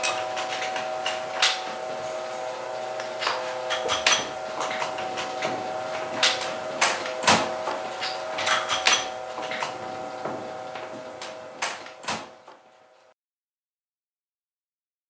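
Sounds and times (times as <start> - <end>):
printing press clicks and clacks: 0.0 - 12.7
steady hum: 0.0 - 13.1.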